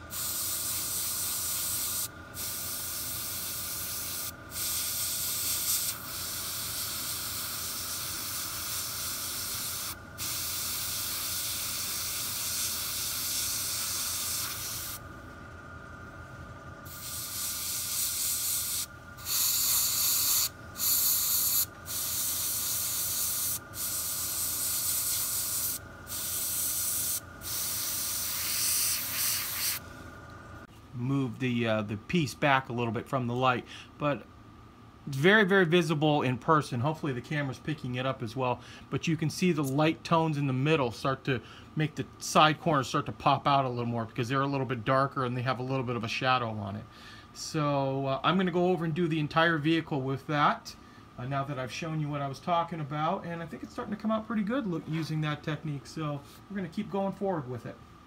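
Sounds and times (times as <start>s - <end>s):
airbrush spraying hiss: 0.0s - 15.0s, 16.8s - 29.8s.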